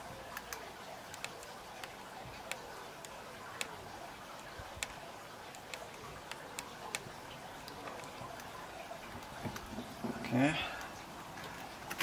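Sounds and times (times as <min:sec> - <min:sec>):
steady background hiss: 0:00.0 - 0:12.0
plastic pipe fittings clicking: 0:04.4 - 0:12.0.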